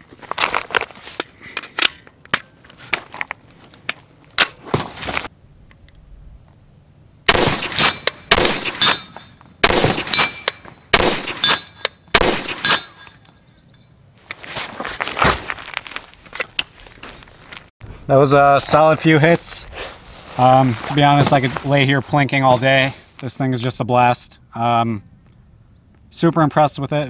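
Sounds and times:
gun handling clicks and knocks: 0.7s - 4.6s
pistol shots with echo: 7.3s - 13.0s.

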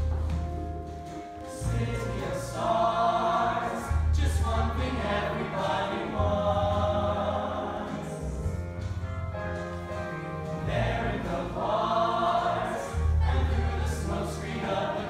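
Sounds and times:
instrumental accompaniment with bass: 0.0s - 15.0s
choir singing in harmony: 1.4s - 8.5s, 10.5s - 15.0s.

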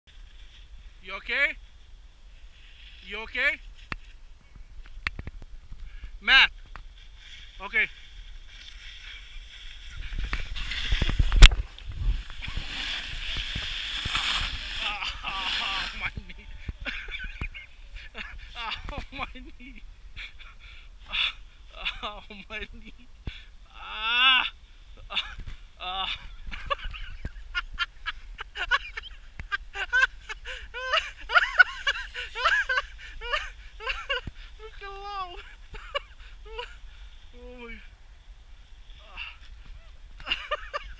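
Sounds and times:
hiss of sliding through snow: 0.1s - 4.2s, 6.8s - 23.6s, 24.2s - 40.9s
snowboard scraping over snow: 2.3s - 3.9s, 6.9s - 20.4s, 26.3s - 35.7s
low rumble on microphone: 9.1s - 20.2s.

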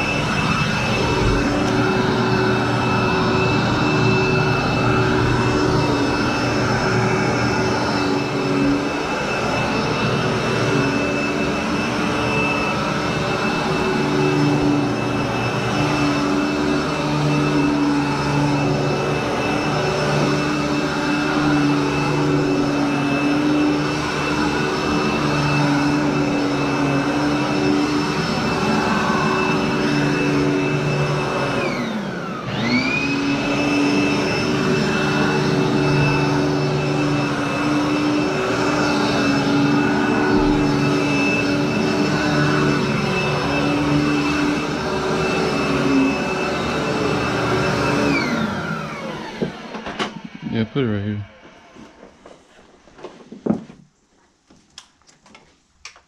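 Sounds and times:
vacuum cleaner running over carpet: 0.0s - 53.8s.

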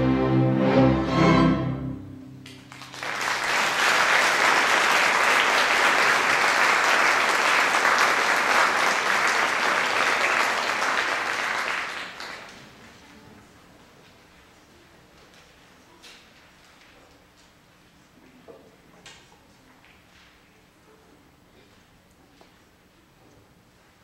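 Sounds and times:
string orchestra chord: 0.0s - 2.4s
audience applauding: 2.4s - 12.8s.

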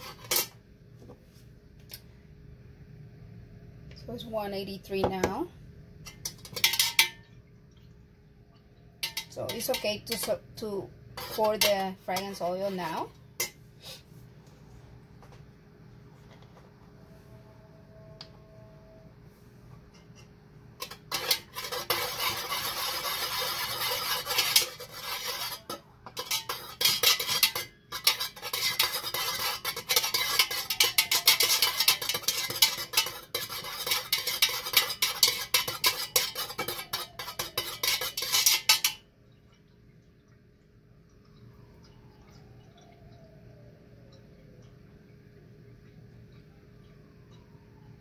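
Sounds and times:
metal utensil scraping a pot: 0.0s - 0.5s, 6.1s - 7.2s, 9.0s - 13.6s, 19.9s - 39.0s.

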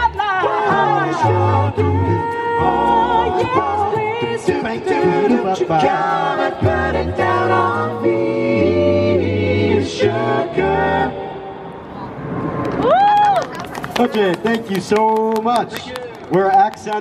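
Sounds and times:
male group singing in harmony: 0.0s - 11.7s.

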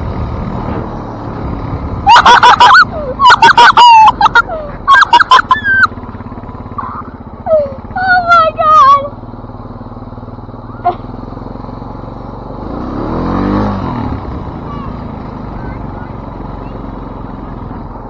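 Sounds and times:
atv engine running: 0.0s - 18.0s
high-pitched wavering squeals: 2.0s - 6.0s.

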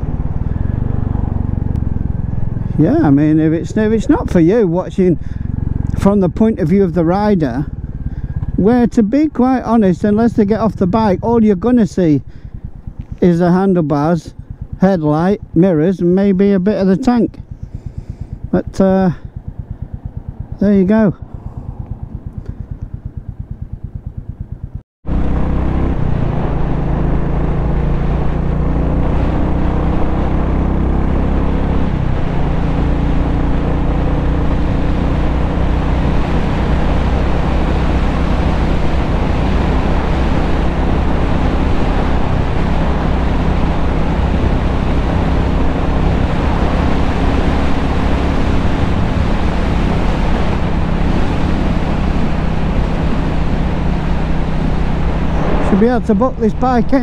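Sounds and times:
motorcycle engine: 0.0s - 57.0s
wind rush on microphone: 36.0s - 57.0s.

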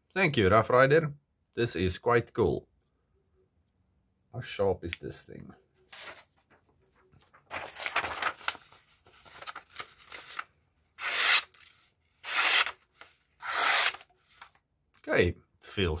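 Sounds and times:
paper rustling: 5.8s - 14.6s
knife slicing paper: 7.5s - 14.5s.

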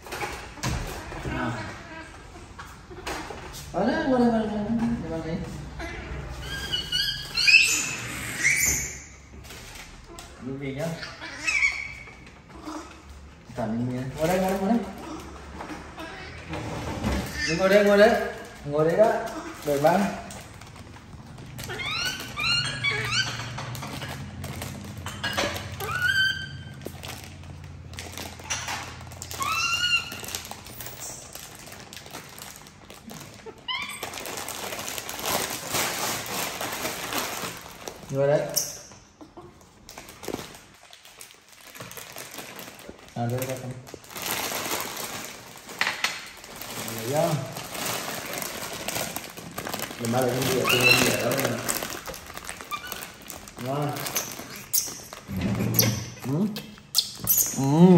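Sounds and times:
baby monkey squeaky calls: 5.8s - 9.2s, 11.0s - 12.2s, 17.3s - 17.6s, 21.6s - 23.6s, 25.2s - 26.8s, 29.3s - 31.2s, 33.7s - 34.1s, 50.4s - 51.3s, 52.7s - 53.2s, 54.0s - 56.2s, 56.9s - 57.6s
plastic bag crinkling: 6.3s - 11.0s, 11.6s - 16.5s, 17.2s - 57.9s.

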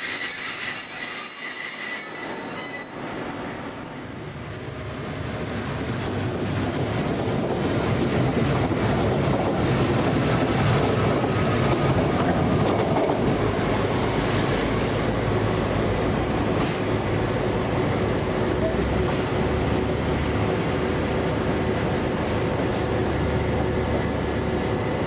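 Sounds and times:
train wheel squeals: 0.0s - 3.5s, 10.1s - 12.0s
diesel train running: 0.0s - 25.0s.

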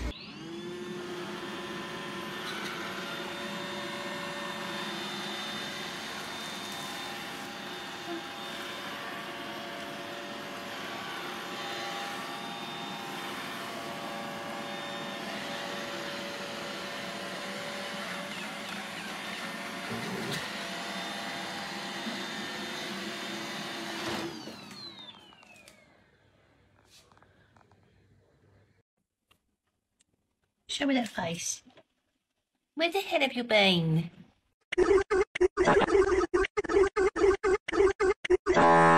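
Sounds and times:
robot vacuum cleaner whirring: 0.0s - 26.0s.

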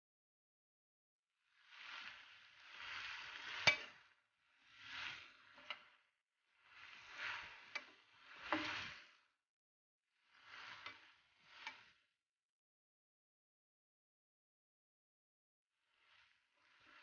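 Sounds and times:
utensil scraping frying pan: 2.0s - 4.1s, 4.8s - 5.9s, 6.9s - 9.2s.

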